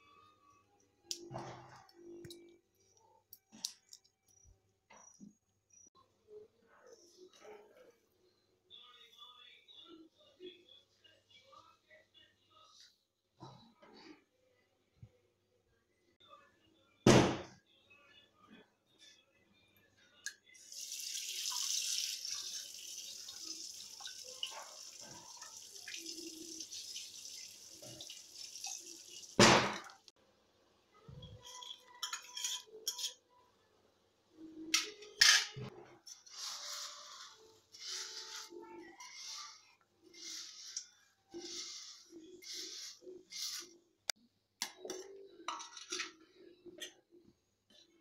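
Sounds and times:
hiss in a cooking pot: 0:36.3 - 0:43.7.

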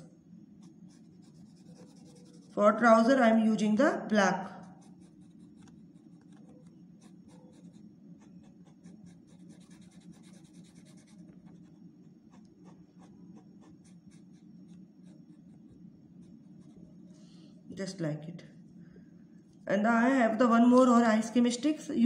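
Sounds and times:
felt-tip pen scribbling on wood: 0:00.7 - 0:02.6, 0:04.6 - 0:11.7.

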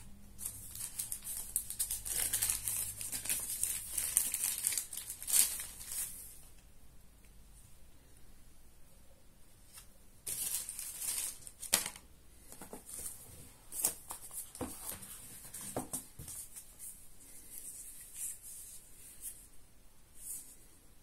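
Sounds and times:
plastic wrap rustling: 0:00.4 - 0:06.4, 0:10.2 - 0:12.0.

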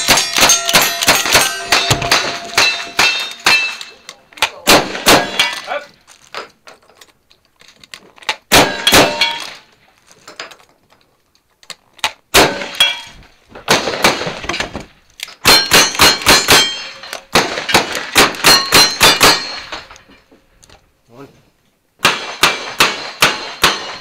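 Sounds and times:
ring of hit steel target: 0:00.0 - 0:03.8
gunshots: 0:00.0 - 0:05.7, 0:08.5 - 0:09.6, 0:12.3 - 0:12.9, 0:13.6 - 0:14.7, 0:15.4 - 0:19.8, 0:22.0 - 0:24.0
shotgun blasts: 0:04.5 - 0:05.7, 0:08.5 - 0:09.6, 0:12.3 - 0:12.8, 0:13.6 - 0:14.6, 0:15.4 - 0:19.6, 0:22.0 - 0:24.0.

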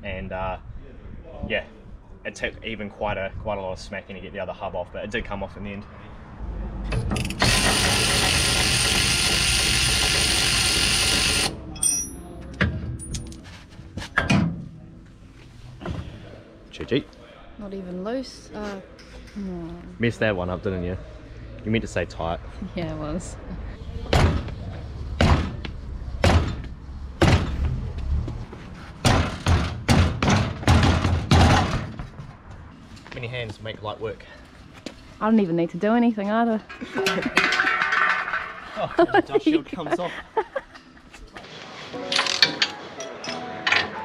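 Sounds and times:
electric ratchet running: 0:07.2 - 0:11.6
metal clinks and knocks: 0:11.8 - 0:13.5, 0:36.6 - 0:38.6
heavy thuds on wheel: 0:25.2 - 0:27.9, 0:29.0 - 0:32.2.

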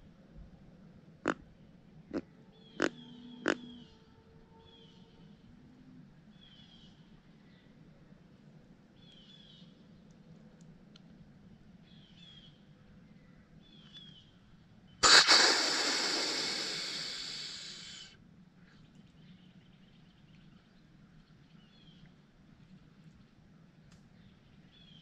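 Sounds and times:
deer call hissing blast: 0:15.0 - 0:18.1.

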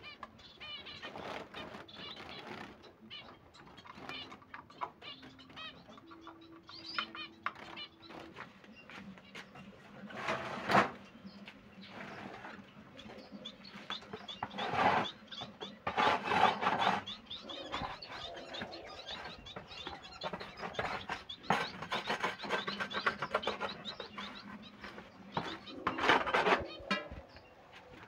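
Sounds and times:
finches chirping: 0:00.0 - 0:28.0
plastic cage tray scraping and knocking: 0:10.0 - 0:11.0, 0:13.9 - 0:27.4.

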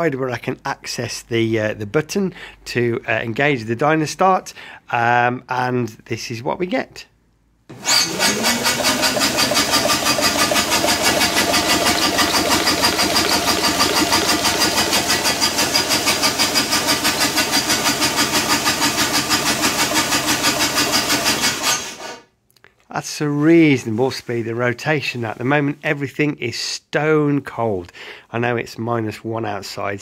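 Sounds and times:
starter motor cranking engine: 0:07.7 - 0:22.0.

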